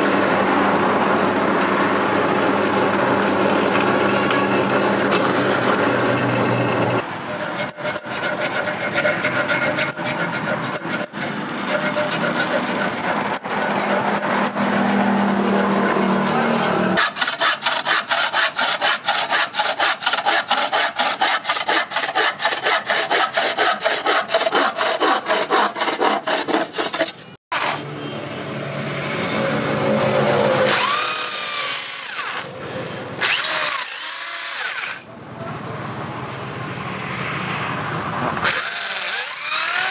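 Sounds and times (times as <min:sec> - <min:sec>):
hacksaw cutting wood: 0:07.0 - 0:27.9, 0:30.6 - 0:32.5, 0:33.2 - 0:35.0, 0:38.4 - 0:39.9
drill boring into wood: 0:30.7 - 0:32.5, 0:33.2 - 0:35.0, 0:38.4 - 0:39.9.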